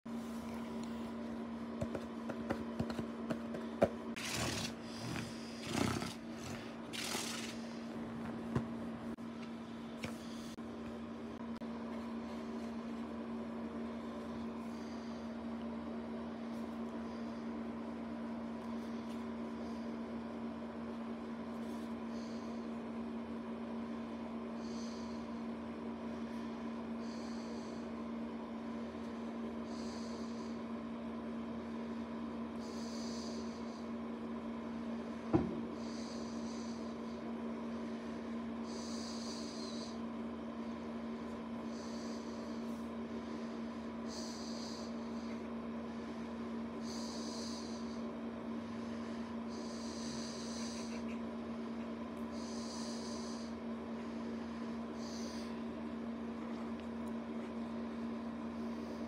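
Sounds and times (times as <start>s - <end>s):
steady low hum: 0.0s - 59.0s
soft breathing hiss: 46.8s - 51.2s, 52.3s - 55.6s.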